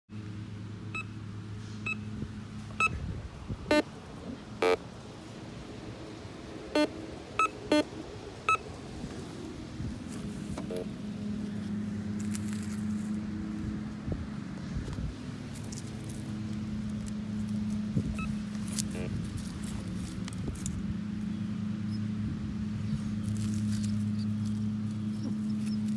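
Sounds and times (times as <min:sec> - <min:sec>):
steady low hum: 0:00.1 - 0:25.9
metal detector beeps: 0:00.9 - 0:01.1, 0:01.8 - 0:02.1, 0:02.8 - 0:03.0, 0:04.6 - 0:04.8, 0:06.8 - 0:07.9
soil rustling: 0:08.9 - 0:21.3, 0:22.7 - 0:25.9.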